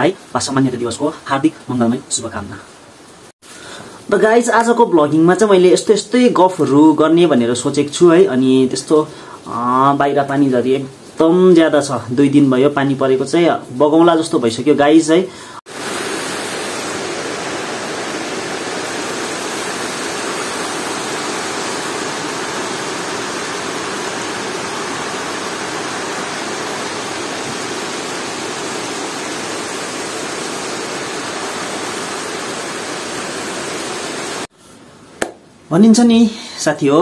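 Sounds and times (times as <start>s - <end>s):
rainwater rushing down steps: 15.7s - 34.5s.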